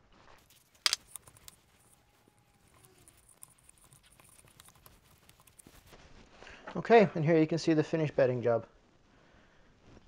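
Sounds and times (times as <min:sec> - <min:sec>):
hand rubbing wood: 0:00.4 - 0:06.0.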